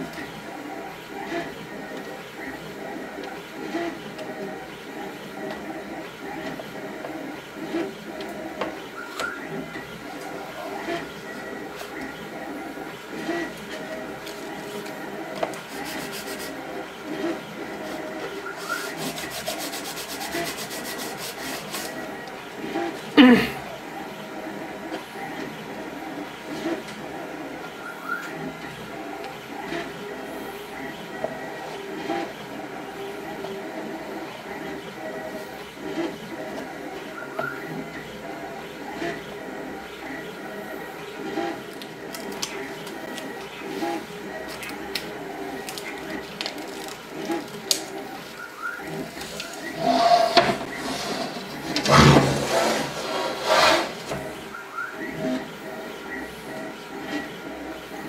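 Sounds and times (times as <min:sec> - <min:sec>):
tape backing rustling and crackling: 0:13.2 - 0:16.6, 0:17.2 - 0:22.4, 0:41.4 - 0:54.3.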